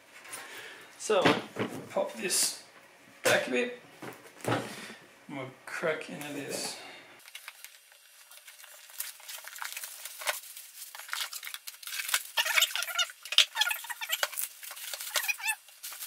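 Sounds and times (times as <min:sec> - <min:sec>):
plastic packaging crinkling: 0:07.2 - 0:16.0.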